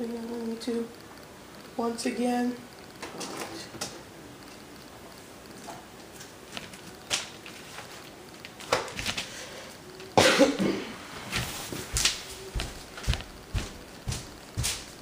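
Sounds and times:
loud cough: 10.2 - 10.9.

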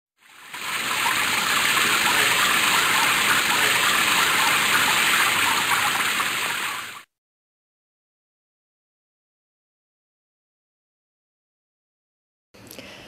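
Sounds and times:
water gushing from tap: 0.2 - 7.1.

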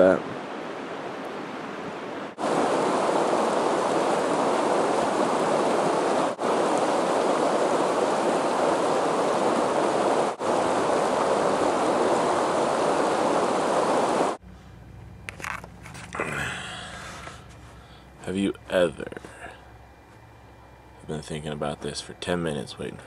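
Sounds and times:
river rushing over rocks: 0.5 - 14.4.

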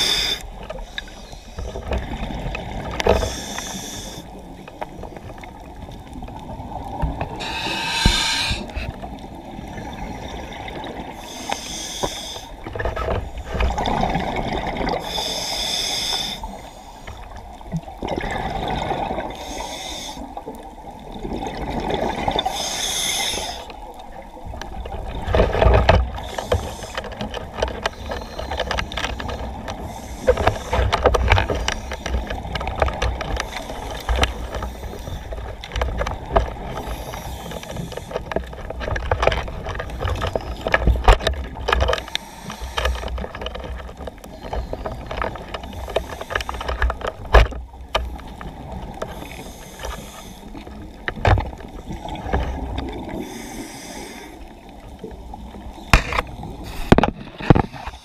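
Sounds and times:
diver breathing underwater: 0.0 - 2.4, 3.0 - 4.4, 7.3 - 9.2, 11.0 - 12.6, 13.2 - 17.2, 18.4 - 20.3, 22.0 - 23.8, 27.8 - 32.6, 36.6 - 38.4, 42.0 - 43.2, 48.6 - 50.8, 51.9 - 54.5
exhaled bubbles: 18.0 - 19.4.

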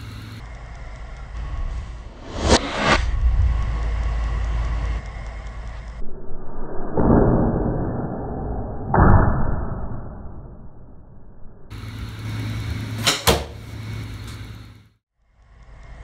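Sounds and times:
low rumble: 0.4 - 12.3.

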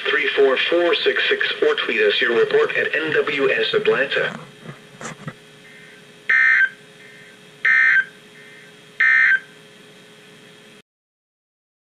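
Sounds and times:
faint steady hum: 0.0 - 10.8
digital data tone bursts: 6.3 - 9.5.

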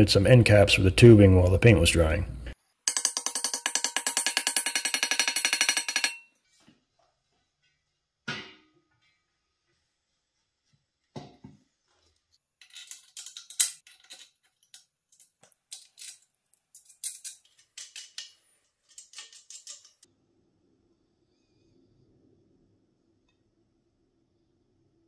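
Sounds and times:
bolts and nuts clinking: 2.9 - 6.3, 12.6 - 20.1.

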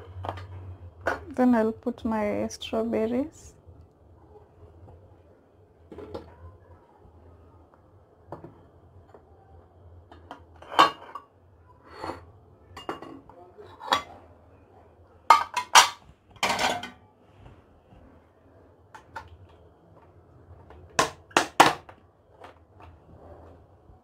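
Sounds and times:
dishes and utensils clinking: 10.2 - 14.2, 15.3 - 17.0.

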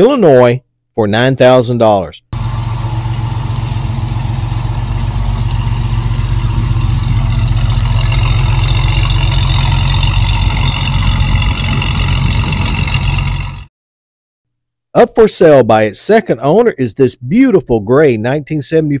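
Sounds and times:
car engine idling: 2.4 - 13.7.

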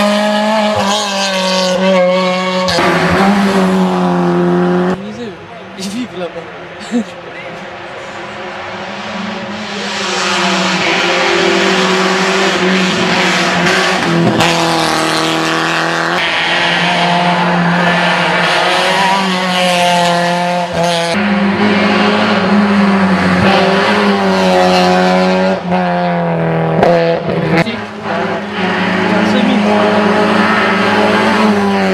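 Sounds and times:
rally car engine revving: 0.0 - 6.6, 7.4 - 31.9.

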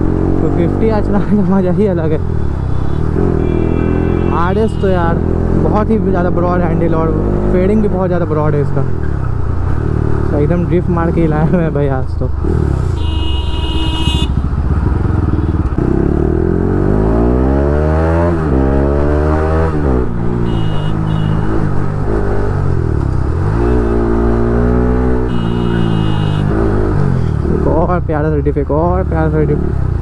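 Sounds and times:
motorcycle engine revving: 0.0 - 8.1, 12.3 - 28.2
vehicle horn beeps: 2.8 - 5.0, 12.9 - 14.4, 20.4 - 21.6, 25.3 - 26.6.

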